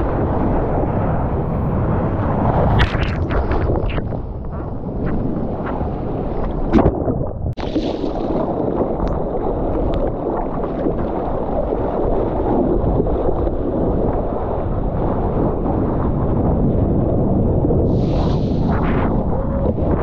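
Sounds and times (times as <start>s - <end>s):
seawater sloshing and rushing: 0.0s - 20.0s
wind buffeting microphone: 0.0s - 20.0s
sharp water splashes: 6.6s - 11.6s.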